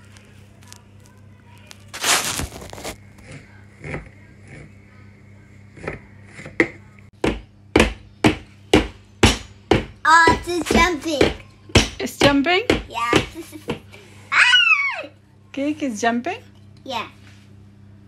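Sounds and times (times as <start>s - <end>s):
batter scraped from plastic bowl: 1.6s - 4.7s.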